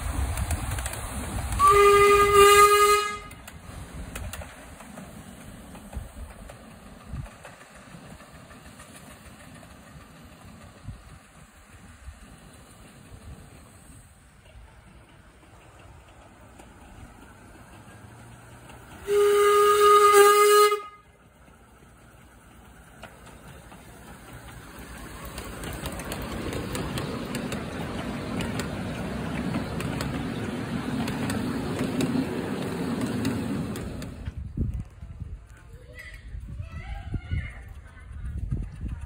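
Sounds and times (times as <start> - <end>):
train running noise: 0.0 - 39.0
wheels clicking on track: 0.0 - 39.0
steam locomotive whistle: 1.6 - 3.4, 19.0 - 21.1.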